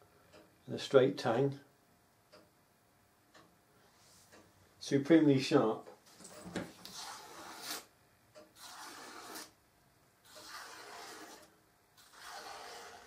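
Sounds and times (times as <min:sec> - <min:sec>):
knife slicing paper: 0:10.4 - 0:11.4, 0:12.0 - 0:13.0.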